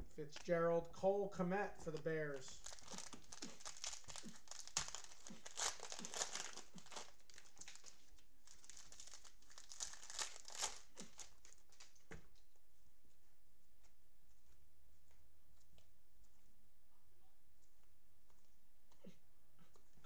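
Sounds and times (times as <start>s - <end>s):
cellophane wrapper crinkling: 1.9s - 12.6s.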